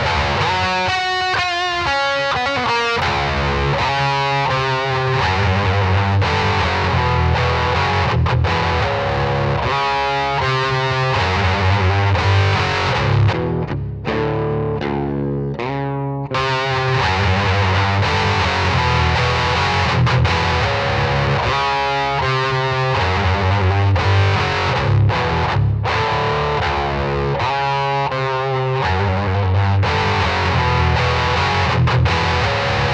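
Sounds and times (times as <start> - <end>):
distorted electric guitar riffing: 0.0 - 32.9.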